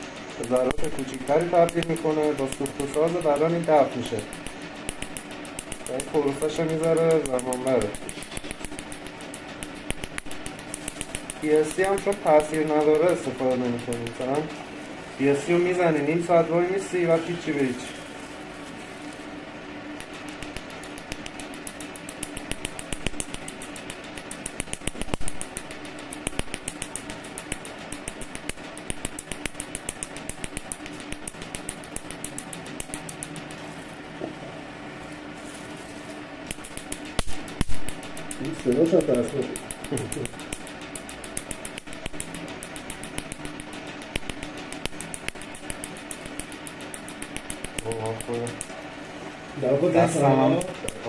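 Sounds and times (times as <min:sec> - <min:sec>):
laser firing sharp clicks: 0:00.0 - 0:14.6, 0:19.9 - 0:33.7, 0:36.4 - 0:48.8, 0:50.0 - 0:51.0
steady low hum: 0:00.0 - 0:51.0.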